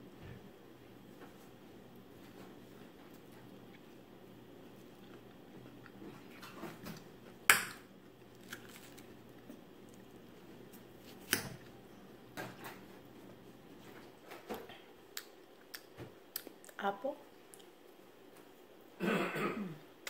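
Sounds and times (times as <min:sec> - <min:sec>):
quiet chewing: 0:04.6 - 0:06.6, 0:14.7 - 0:18.5.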